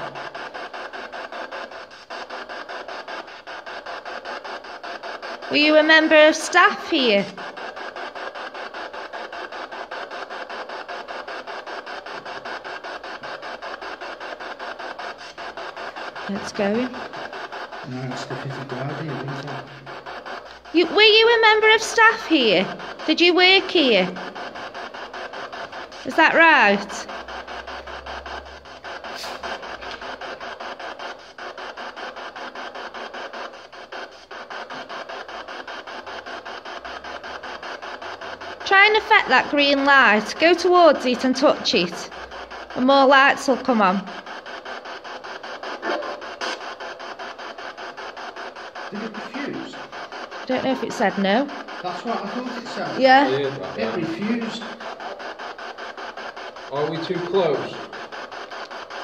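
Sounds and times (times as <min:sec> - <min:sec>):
pulsing radio static: 0:00.0 - 0:59.0.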